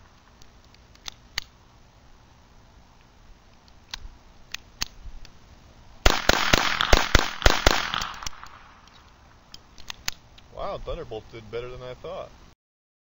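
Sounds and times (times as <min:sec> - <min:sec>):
pistol shots with echo: 0:06.0 - 0:08.8.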